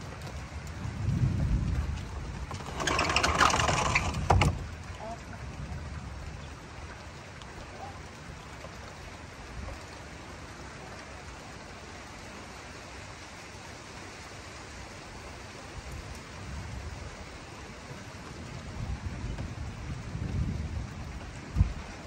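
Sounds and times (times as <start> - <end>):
low thunder rumble: 0.0 - 7.0, 18.2 - 22.0
rain hissing: 0.0 - 22.0.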